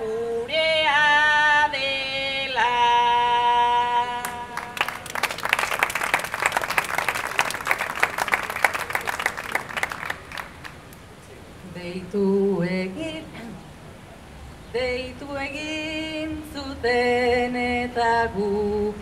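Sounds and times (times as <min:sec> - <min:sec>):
woman singing: 0:00.0 - 0:04.8, 0:11.6 - 0:13.7, 0:14.7 - 0:19.0
audience applauding: 0:04.6 - 0:11.0.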